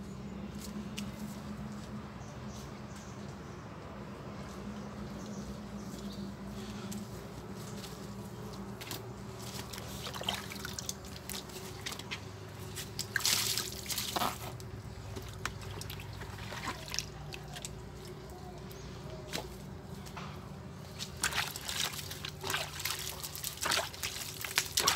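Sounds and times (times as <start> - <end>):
water splashing and dripping: 9.4 - 18.2, 20.9 - 24.9
water splash from bucket: 13.0 - 14.5, 15.2 - 17.7, 21.0 - 24.9.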